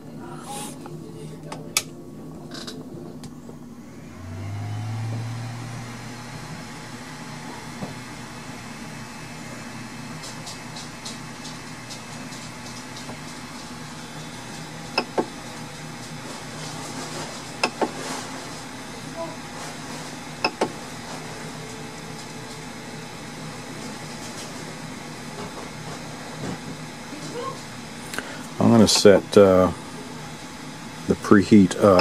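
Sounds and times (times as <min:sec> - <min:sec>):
three d printer fans humming: 0:00.0 - 0:32.0
louder low hum: 0:01.9 - 0:10.3.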